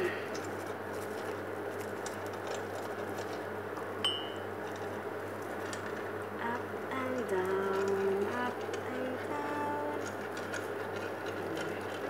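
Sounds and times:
steady low hum: 0.0s - 12.0s
sharp ringing clink: 4.0s - 4.4s.

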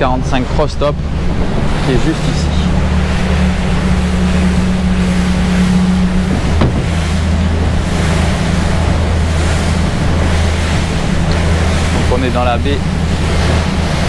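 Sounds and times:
outboard engines droning: 0.0s - 14.0s
water rushing past hull: 0.0s - 14.0s
wind noise: 0.0s - 14.0s
short knock: 6.5s - 7.0s.

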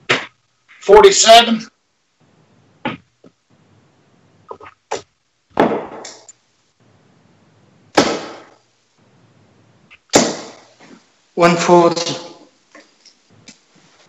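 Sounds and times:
darts hitting dartboard: 0.0s - 0.4s, 4.9s - 6.3s, 8.0s - 8.6s, 10.1s - 10.7s.

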